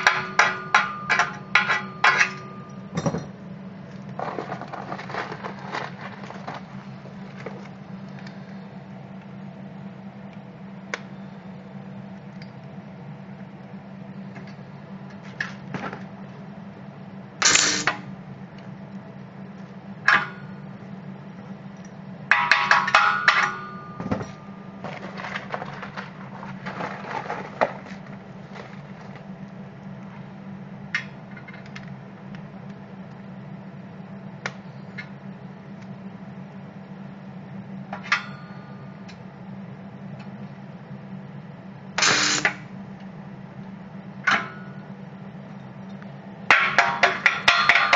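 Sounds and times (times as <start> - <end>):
welder power unit humming: 0.0 - 47.9.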